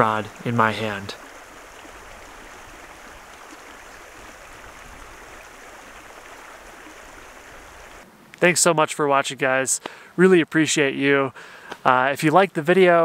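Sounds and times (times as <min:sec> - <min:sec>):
stream flowing: 0:00.0 - 0:08.6.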